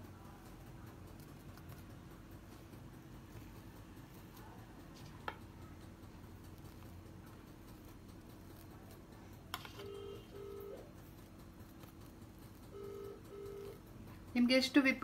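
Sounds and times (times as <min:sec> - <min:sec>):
faint steady hum: 0:00.0 - 0:15.0
telephone ring beeps: 0:09.8 - 0:10.8, 0:12.7 - 0:13.8.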